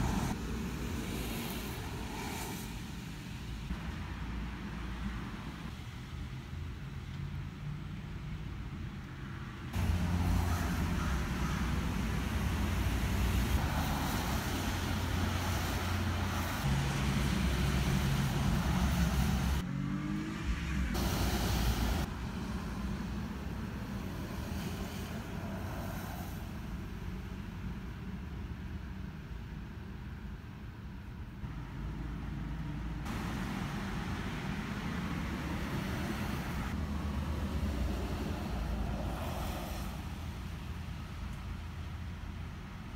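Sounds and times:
hiss: 0:00.0 - 0:03.6, 0:21.0 - 0:22.1, 0:24.2 - 0:26.8, 0:38.1 - 0:40.5.

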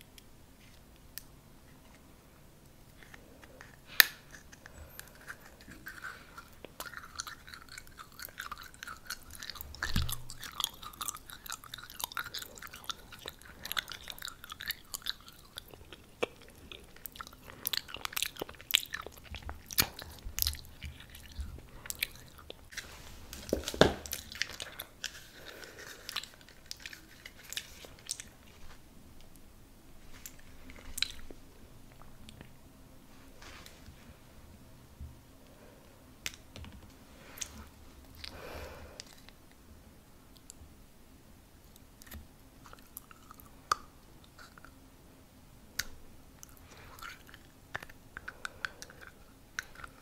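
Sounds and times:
chewing and crunching food: 0:02.9 - 0:29.4, 0:30.1 - 0:32.6, 0:37.2 - 0:39.6, 0:41.7 - 0:44.8, 0:45.8 - 0:50.0.

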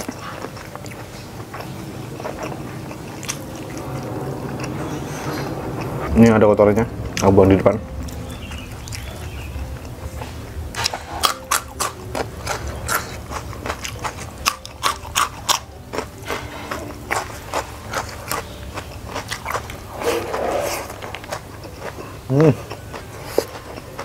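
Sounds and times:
chewing crunchy bean pod: 0:10.8 - 0:20.0.

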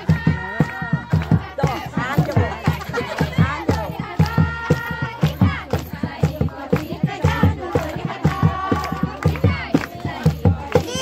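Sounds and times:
fast drum beat: 0:00.0 - 0:11.0
women singing: 0:00.0 - 0:11.0.

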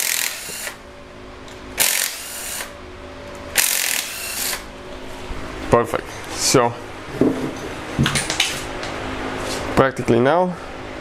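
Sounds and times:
power tool spinning bolts: 0:00.0 - 0:00.8, 0:01.8 - 0:02.7, 0:03.6 - 0:04.6.

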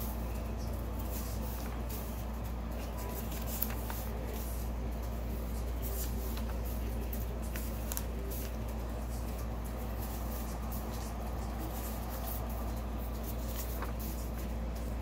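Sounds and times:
paper sheets rustling: 0:00.0 - 0:15.0
steady low hum: 0:00.0 - 0:15.0.

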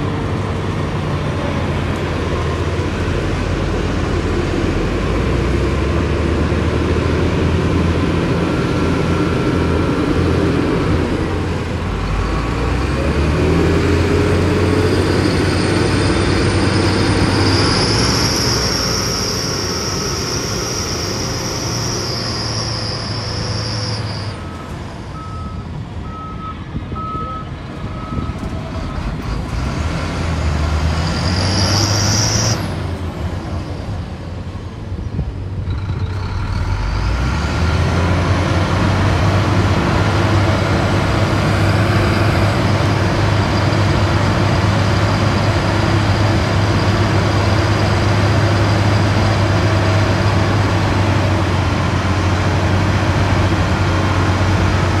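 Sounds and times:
heavy diesel engines running: 0:00.0 - 0:55.0
reversing beeper: 0:07.1 - 0:29.0, 0:30.7 - 0:32.9.

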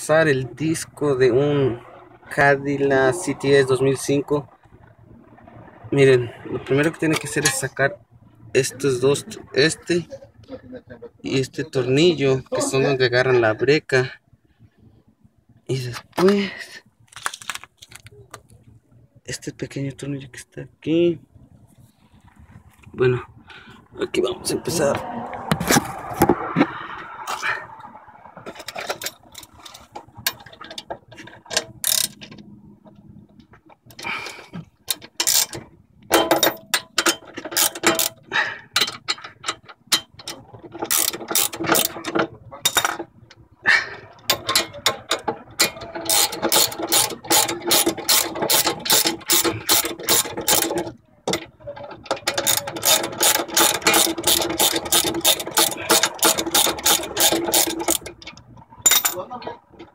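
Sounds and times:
ratchet wrench clicking: 0:31.8 - 0:32.2, 0:34.9 - 0:35.6, 0:37.0 - 0:38.2, 0:40.9 - 0:42.0, 0:46.1 - 0:50.8, 0:52.3 - 0:58.2.

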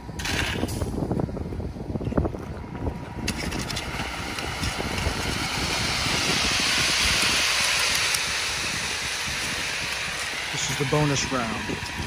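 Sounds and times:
concrete mixer truck running: 0:00.0 - 0:12.0
hiss: 0:04.2 - 0:12.0.

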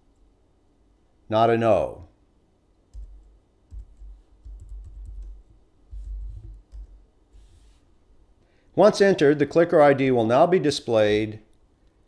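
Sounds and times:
keyboard typing: 0:02.9 - 0:07.0.

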